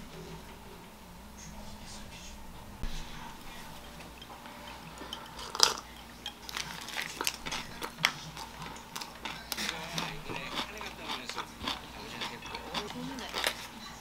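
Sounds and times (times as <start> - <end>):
paper wrapper crinkling: 6.4 - 13.8.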